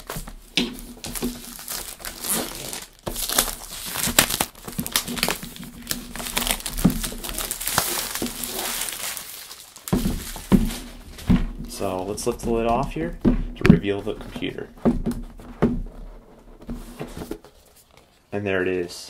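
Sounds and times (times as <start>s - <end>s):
plastic wrap crinkling: 0.0s - 18.3s.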